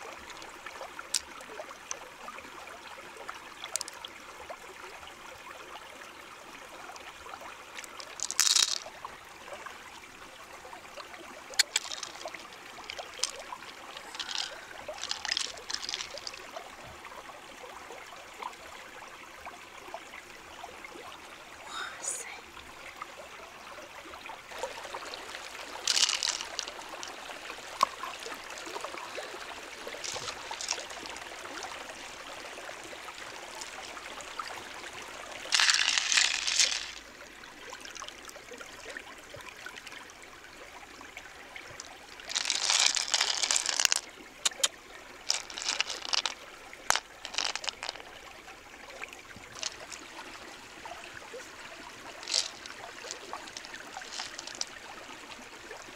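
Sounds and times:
stream trickling over rocks: 0.0s - 55.9s
shell and pearls rattling: 1.1s - 1.3s, 3.6s - 4.0s, 7.8s - 9.0s, 11.6s - 16.5s, 25.5s - 28.4s, 29.1s - 31.9s, 35.5s - 37.0s, 41.7s - 44.7s, 45.3s - 48.2s, 49.4s - 50.1s, 52.0s - 54.8s.

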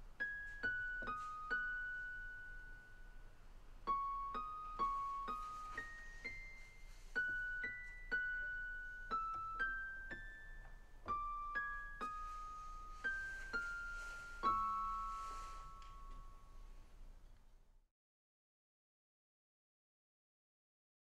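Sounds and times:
slow keyboard melody: 0.0s - 16.7s.

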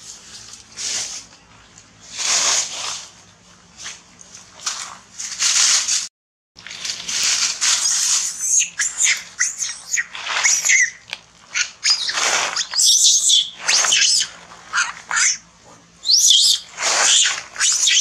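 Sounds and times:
dry leaves rustling and crunching: 3.8s - 15.4s
high-pitched squeaks and chirps: 7.6s - 15.4s, 16.0s - 18.0s.

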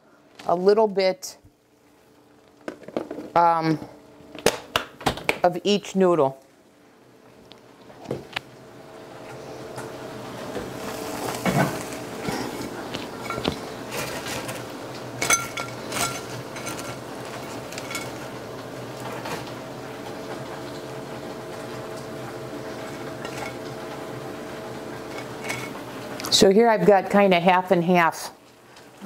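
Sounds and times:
faint sizzle of meat cooking: 6.4s - 29.0s
ceramic plate and utensils clinking: 13.2s - 13.6s, 15.2s - 17.0s.

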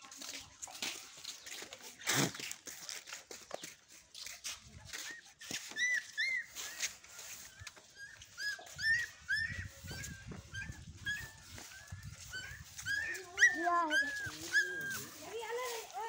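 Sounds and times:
puppy whimpering: 8.0s - 15.2s.

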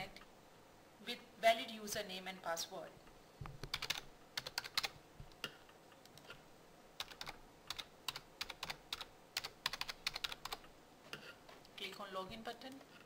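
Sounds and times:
computer keyboard keystrokes: 3.6s - 5.4s, 7.0s - 10.6s.

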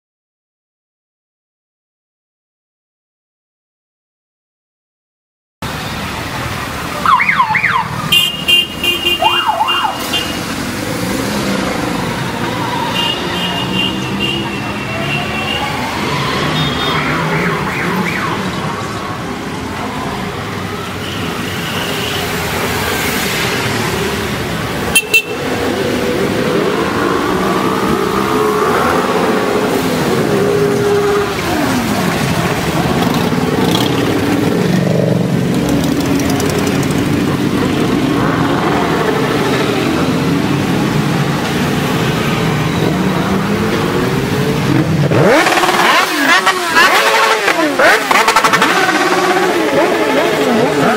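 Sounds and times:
motorcycle engines revving: 5.7s - 50.9s
siren wail: 9.2s - 10.1s, 14.7s - 18.9s
rapid horn beeps: 24.9s - 25.4s.

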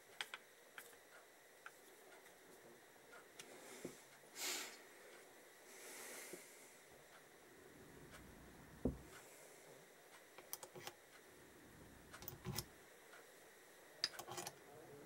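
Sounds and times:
dull knock: 8.8s - 9.1s
metal clicks and taps: 14.0s - 14.5s.

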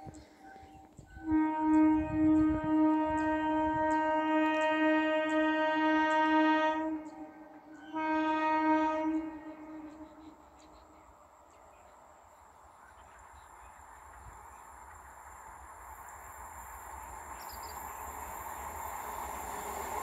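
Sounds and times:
train horn blasts: 1.1s - 11.1s.

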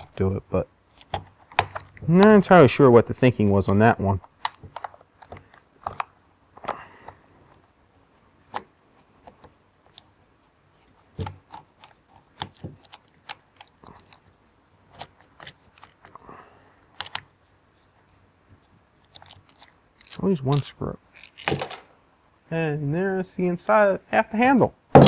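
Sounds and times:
small clicks and knocks of plastic: 0.9s - 2.4s, 4.1s - 7.6s, 10.9s - 16.2s, 16.9s - 17.3s, 19.0s - 21.9s.

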